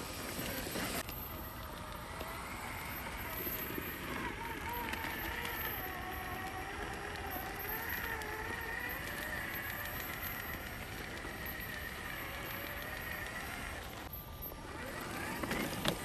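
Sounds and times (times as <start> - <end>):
rc car motor whining: 0.0 - 16.0.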